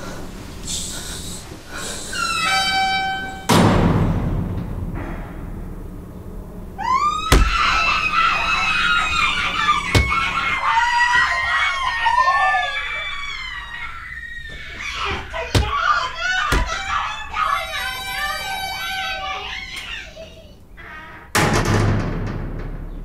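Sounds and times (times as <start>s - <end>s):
long high-pitched scream: 2.0s - 3.5s, 6.8s - 20.0s
heavy thuds: 3.3s - 8.1s, 16.5s - 16.9s.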